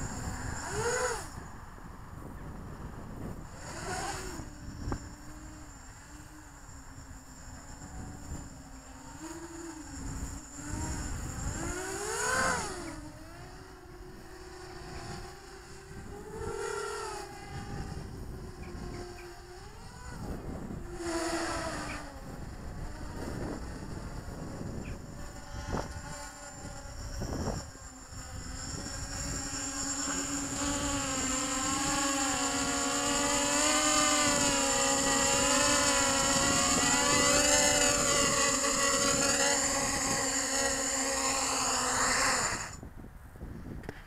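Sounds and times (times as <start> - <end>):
quadcopter motors whining: 0.0 - 44.0.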